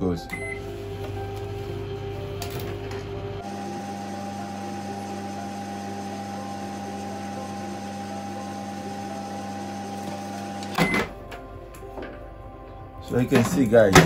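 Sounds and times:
microwave oven humming: 0.3 - 11.4.

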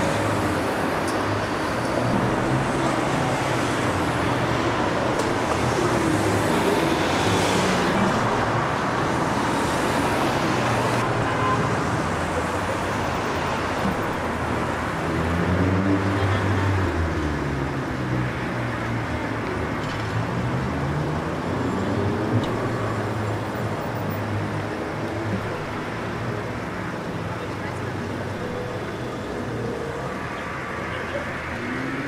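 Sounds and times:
road traffic noise: 0.0 - 32.0
faint voices: 24.5 - 32.0.

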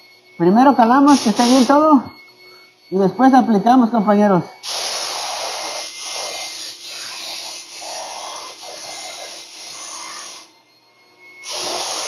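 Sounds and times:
paint sprayer hissing: 1.1 - 1.8, 4.6 - 10.5, 11.4 - 12.0.

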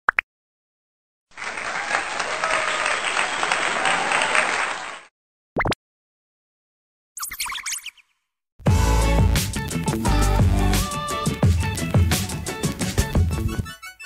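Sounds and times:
applause: 1.3 - 5.1.

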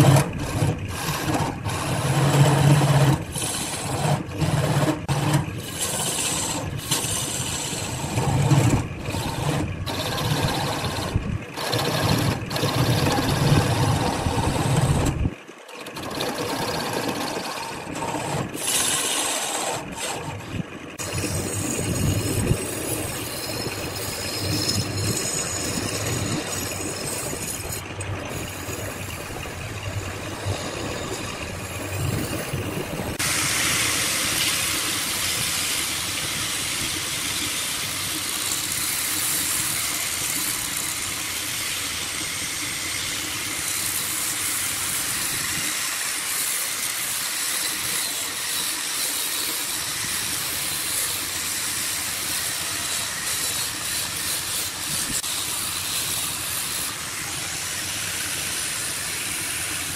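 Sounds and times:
chisel scraping spinning wood: 0.0 - 36.2, 36.9 - 59.9
wood lathe motor: 0.0 - 59.9
sanding disc hissing on wood: 30.4 - 59.9.

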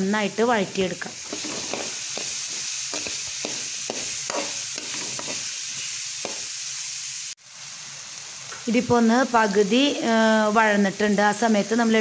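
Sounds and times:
vegetables sizzling in hot oil: 0.0 - 12.0
metal spoon scraping pan: 0.7 - 5.5.

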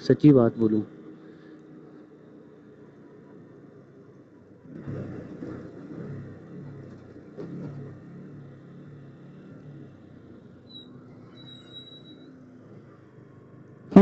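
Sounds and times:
motorcycle engine running: 0.0 - 14.0
high whistling tone: 10.6 - 12.4.

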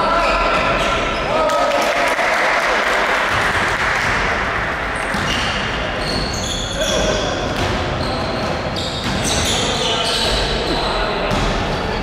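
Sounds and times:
basketball bouncing: 5.0 - 5.5, 7.6 - 7.8
shoes squeaking on gym floor: 5.0 - 11.1.

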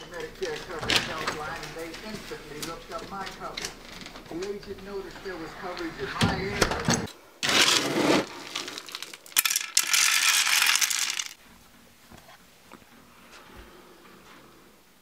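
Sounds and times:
dry kibble rattling in a bin: 7.4 - 11.4
pellets clattering into a bowl: 7.4 - 11.4.

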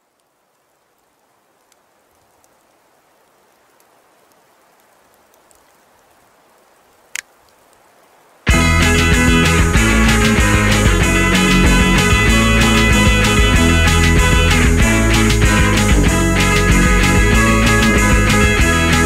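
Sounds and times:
faint hiss with ticks: 0.0 - 8.4
loud rock music: 8.5 - 19.0.

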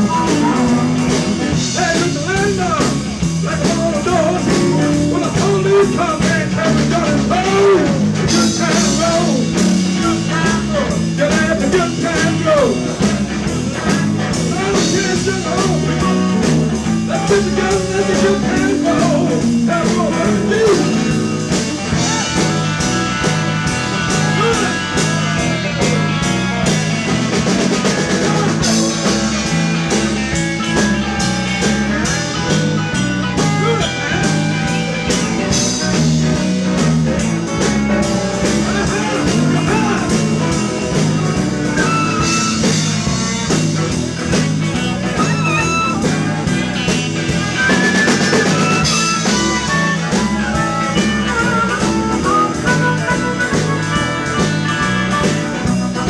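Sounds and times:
amplified harmonica: 0.0 - 1.6, 13.7 - 19.7, 20.8 - 56.0
drum kit beat: 0.0 - 56.0
electric guitar: 0.0 - 56.0.

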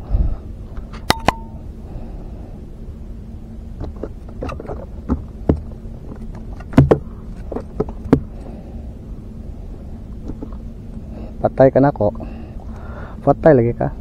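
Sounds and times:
steady low hum: 0.0 - 14.0
fish thrashing knocks and taps: 3.8 - 8.5.

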